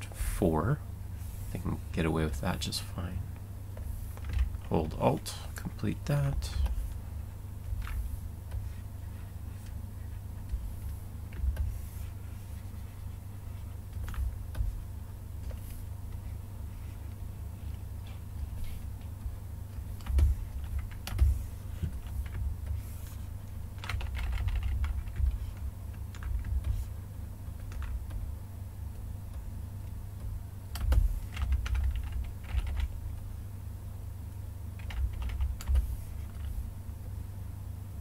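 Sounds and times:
keyboard clicking: 0:23.8 - 0:26.9, 0:30.7 - 0:32.9, 0:34.8 - 0:35.8.

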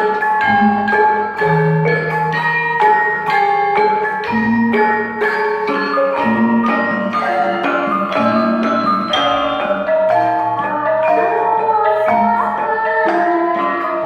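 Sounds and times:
gamelan bronze gongs ringing: 0:00.0 - 0:14.0.

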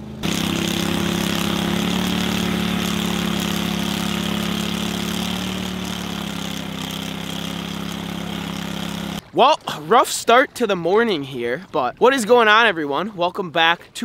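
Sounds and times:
boat motor running: 0:00.0 - 0:09.3
water rushing along hull: 0:00.0 - 0:09.4.

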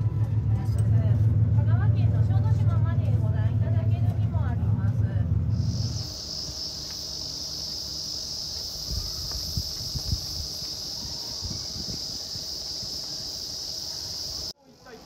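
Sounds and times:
cicadas buzzing: 0:05.5 - 0:14.6.

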